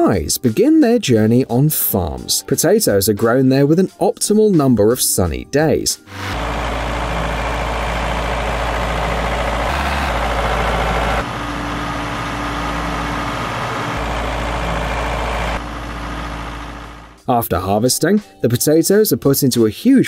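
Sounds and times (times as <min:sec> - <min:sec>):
heavy farm machinery engine hum: 0:06.1 - 0:17.2.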